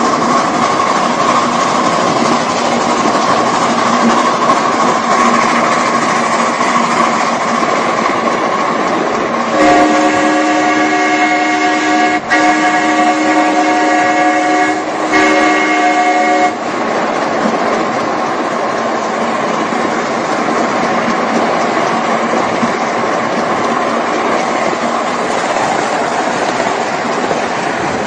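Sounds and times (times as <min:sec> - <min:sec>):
running locomotive rushing: 0:00.0 - 0:28.0
steam locomotive whistle: 0:09.5 - 0:16.7.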